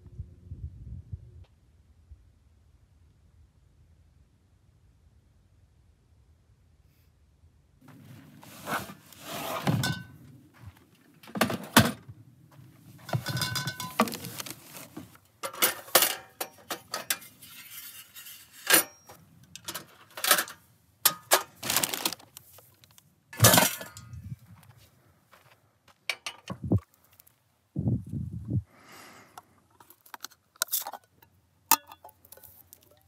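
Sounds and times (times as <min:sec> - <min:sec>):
plastic bags rustling: 0:13.1 - 0:15.2, 0:21.2 - 0:23.0.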